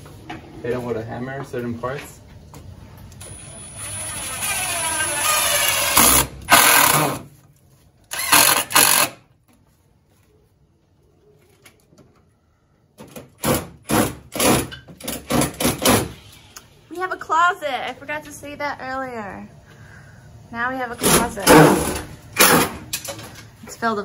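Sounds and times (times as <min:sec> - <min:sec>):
cordless drill motor whirring: 0:03.2 - 0:07.2, 0:08.1 - 0:09.2
drill bursts driving screws into wood: 0:03.6 - 0:07.3, 0:08.1 - 0:09.2, 0:13.4 - 0:16.2.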